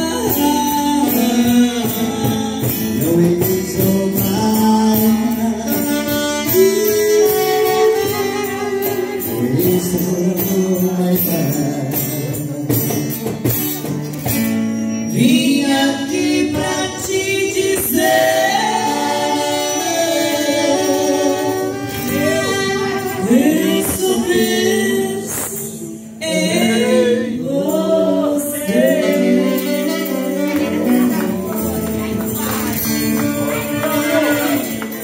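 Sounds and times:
acoustic guitar: 0:00.0 - 0:35.0
woman singing: 0:15.2 - 0:25.5.

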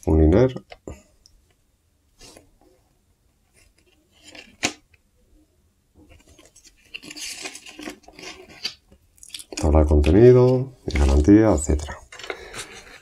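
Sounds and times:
paper rustling: 0:06.0 - 0:08.8, 0:09.5 - 0:13.0.

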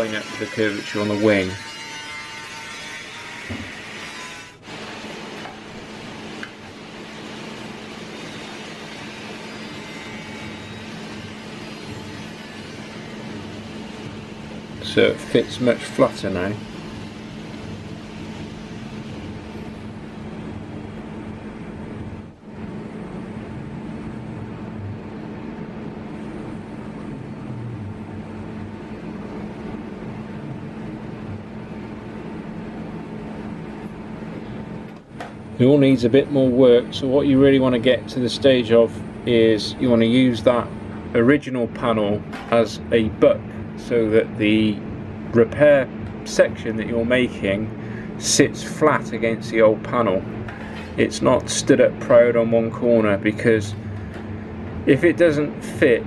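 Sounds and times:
machine humming: 0:00.0 - 0:41.3, 0:42.2 - 0:56.0.

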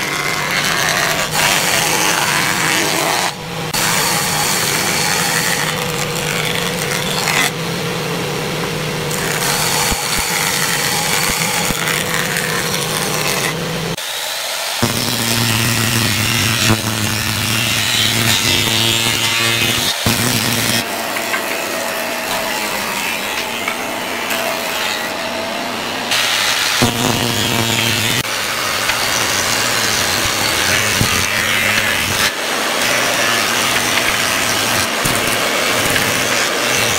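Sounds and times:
motor hum: 0:00.0 - 0:14.0
planer blades hissing on wood: 0:00.0 - 0:36.9.

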